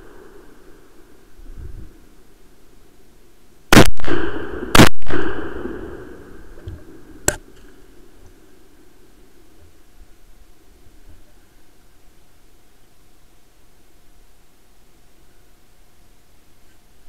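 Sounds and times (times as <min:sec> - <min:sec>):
gunshots with echo: 0:03.7 - 0:06.3
quieter sharp crack: 0:03.7 - 0:07.8.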